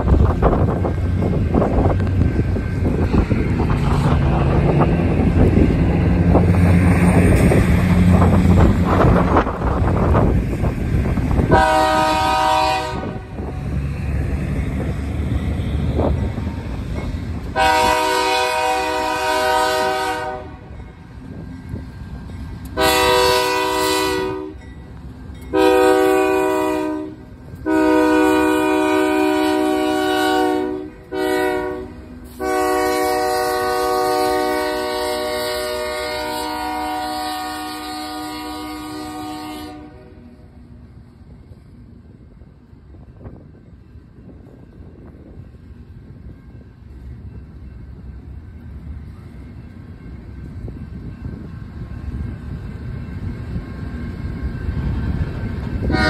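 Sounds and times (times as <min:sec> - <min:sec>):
diesel locomotive rumble: 0:00.0 - 0:56.0
train air horn blasts: 0:11.4 - 0:13.7, 0:17.5 - 0:20.8, 0:22.7 - 0:24.6, 0:25.5 - 0:40.4, 0:55.8 - 0:56.0.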